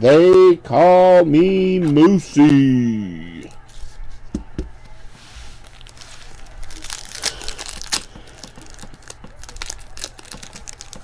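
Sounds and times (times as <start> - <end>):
foil wrapper crinkling and tearing: 5.6 - 11.0.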